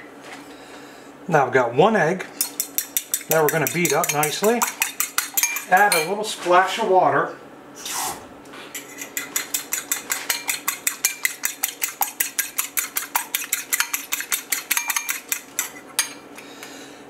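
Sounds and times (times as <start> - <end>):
fork beating egg in bowl: 2.4 - 6.1, 8.7 - 16.2.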